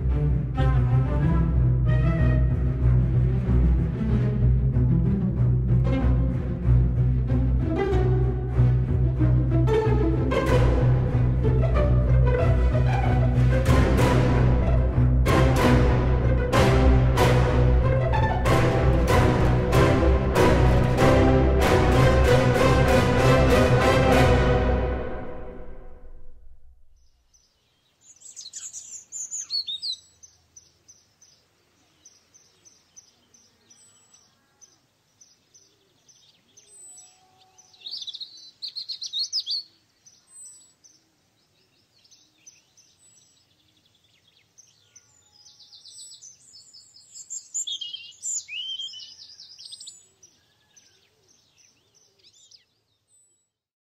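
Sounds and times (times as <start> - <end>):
music chord: 0.0 - 26.8
songbirds chirping and trilling: 27.0 - 53.6.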